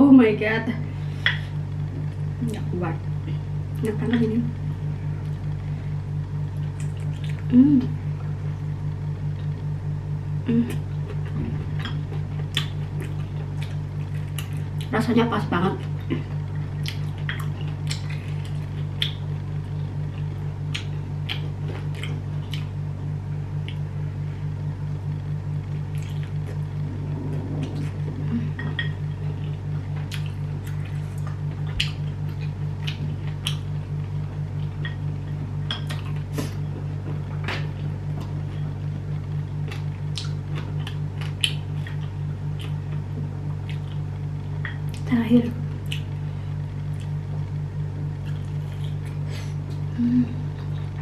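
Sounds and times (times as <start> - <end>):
steady low hum: 0.0 - 51.0
chewing: 6.6 - 7.5, 15.8 - 19.2, 25.7 - 33.7, 34.6 - 45.1, 46.9 - 47.2, 48.2 - 49.8.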